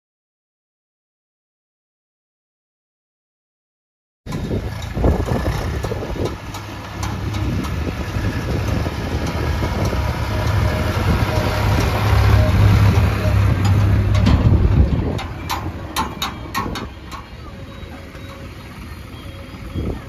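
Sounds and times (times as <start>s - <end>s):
diesel engine rumbling: 4.3s - 20.0s.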